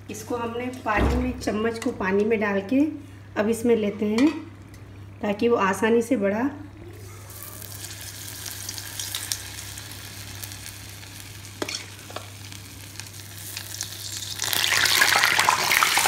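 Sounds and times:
batter sizzling in hot oil: 0:07.2 - 0:16.0.

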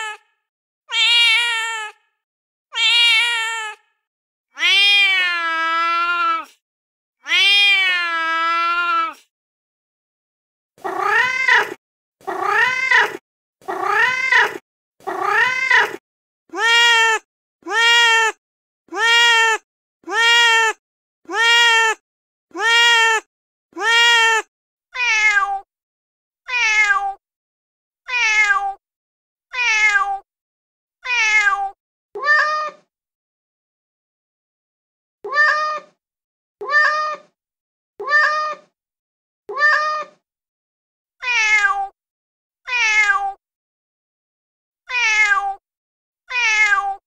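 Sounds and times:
cat meowing: 0:00.9 - 0:02.0, 0:02.7 - 0:03.8, 0:04.6 - 0:06.5, 0:07.2 - 0:09.2, 0:10.8 - 0:18.4, 0:25.0 - 0:25.7, 0:26.5 - 0:27.2, 0:28.1 - 0:28.8, 0:29.5 - 0:30.2, 0:31.0 - 0:32.8, 0:35.2 - 0:36.0, 0:36.6 - 0:37.4, 0:38.0 - 0:38.7, 0:39.5 - 0:40.2, 0:41.2 - 0:42.0, 0:42.7 - 0:43.4, 0:44.9 - 0:45.6, 0:46.3 - 0:47.0.

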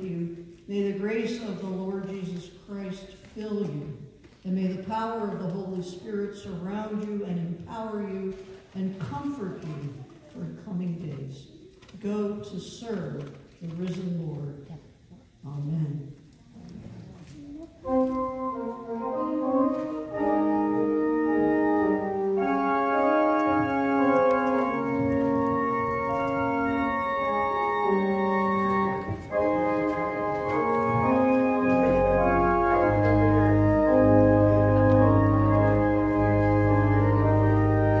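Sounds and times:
organ chords: 0:17.8 - 0:38.0.

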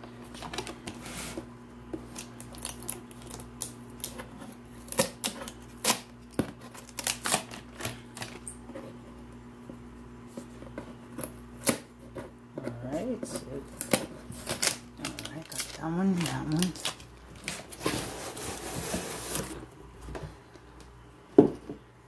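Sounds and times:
faint steady hum: 0:00.0 - 0:22.0
stickers being picked and cut: 0:12.6 - 0:17.0.

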